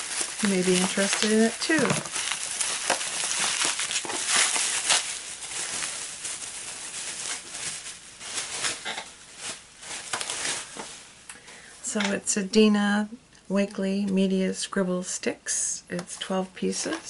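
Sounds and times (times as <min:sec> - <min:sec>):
bubble wrap crackling: 0:00.0 - 0:11.3.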